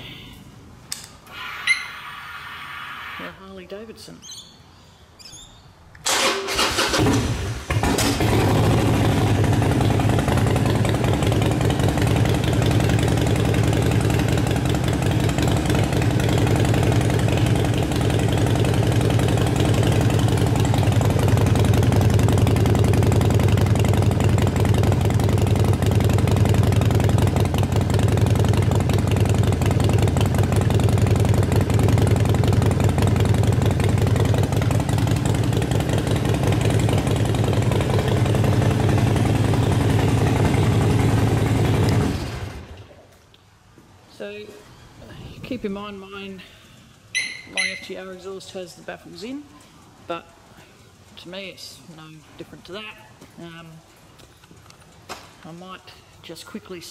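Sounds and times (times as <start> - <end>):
motorcycle engine idling: 7.2 - 42.8.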